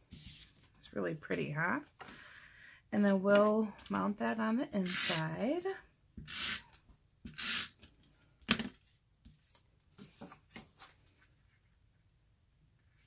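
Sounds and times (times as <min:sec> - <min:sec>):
paper rustling: 0:08.8 - 0:11.4.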